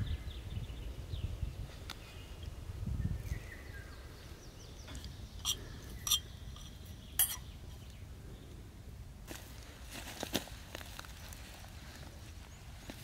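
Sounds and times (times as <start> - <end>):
spoon clinking against metal pan: 5.4 - 7.4.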